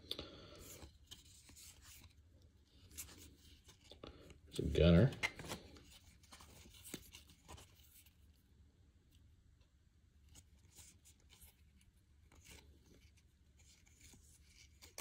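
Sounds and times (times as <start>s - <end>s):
trading cards flipped by hand: 0.6s - 2.2s, 5.0s - 8.1s, 10.3s - 15.0s.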